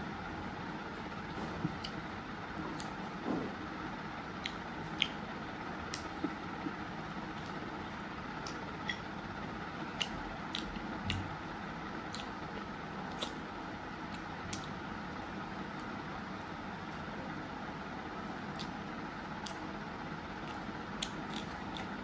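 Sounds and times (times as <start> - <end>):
person chewing food: 1.0 - 2.1, 2.7 - 3.0, 4.4 - 9.1, 9.8 - 16.0, 18.4 - 19.7, 20.4 - 22.0.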